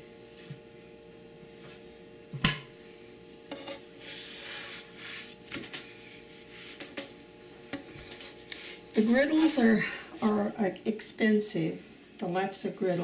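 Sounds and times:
stick scraping on griddle: 3.4s - 5.6s.

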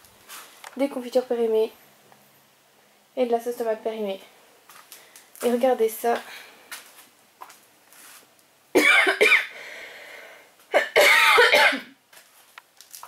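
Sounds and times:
woman coughing harshly: 8.8s - 9.6s, 10.7s - 12.0s.

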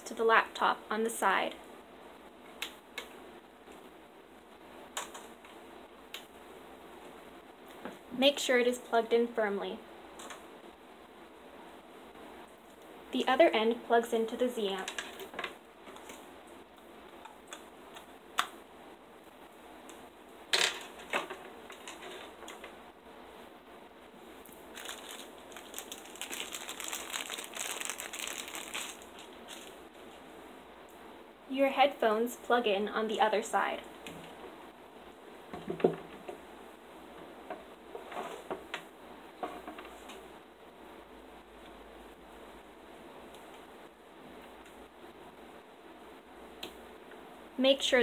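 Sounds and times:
cables being handled: 14.8s - 18.6s, 19.8s - 22.8s, 24.4s - 30.3s.

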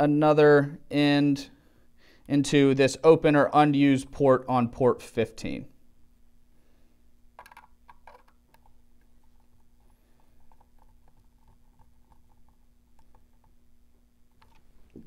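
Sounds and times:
screwdriver clicking and scraping: 7.4s - 13.6s.

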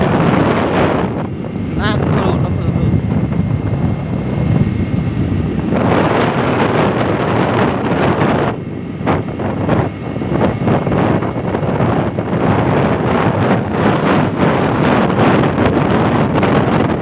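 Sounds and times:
motorcycle road noise: 0.0s - 17.0s
wind buffeting microphone: 0.0s - 17.0s.

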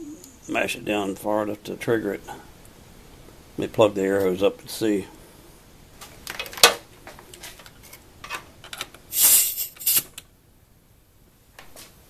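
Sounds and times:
hiss of escaping air: 9.1s - 10.2s.

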